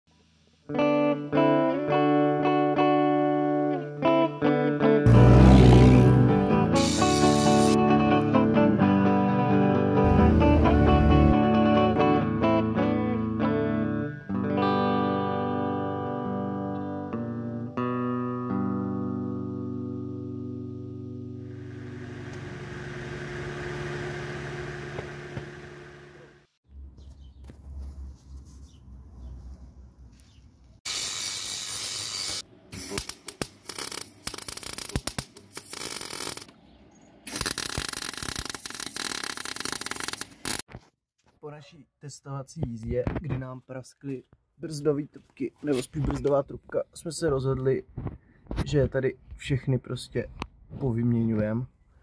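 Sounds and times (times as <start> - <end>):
electric guitar chords: 0.7 - 25.9
angle grinder cutting steel: 5.1 - 7.8
welder crackling: 6.8 - 7.8, 30.8 - 36.5, 37.2 - 40.7.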